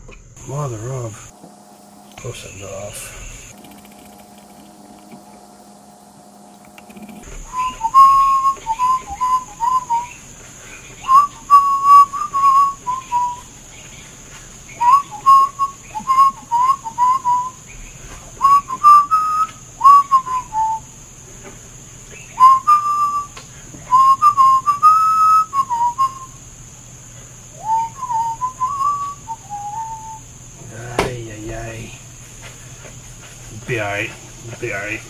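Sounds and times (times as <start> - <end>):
person whistling a tune: 7.5 - 10.1, 11.1 - 13.4, 14.8 - 17.6, 18.4 - 20.8, 22.4 - 26.3, 27.6 - 30.2.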